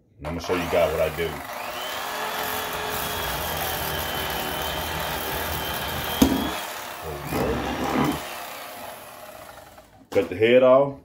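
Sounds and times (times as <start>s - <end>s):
electric knife buzzing: 0.3s - 10.1s.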